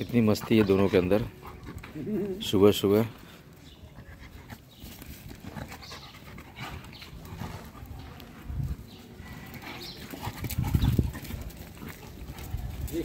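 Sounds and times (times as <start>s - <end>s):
dogs panting: 0.0s - 13.0s
dogs scuffling on paving: 0.0s - 13.0s.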